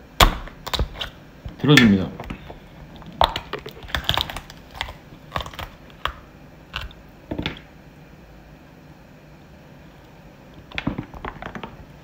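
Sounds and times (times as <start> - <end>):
crab shell cracking: 0.2 - 7.6.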